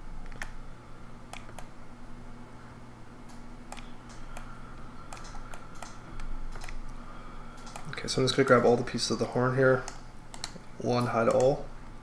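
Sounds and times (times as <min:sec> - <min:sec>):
steady low hum: 0:00.0 - 0:12.0
keyboard and mouse clicks: 0:00.2 - 0:00.6, 0:01.3 - 0:01.7, 0:05.1 - 0:06.8, 0:07.6 - 0:08.0, 0:09.8 - 0:10.6, 0:11.3 - 0:11.6.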